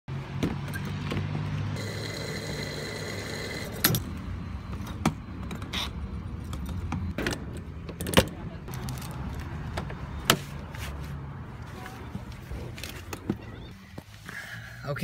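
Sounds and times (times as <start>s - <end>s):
high whine of fuel flowing: 1.8s - 3.9s.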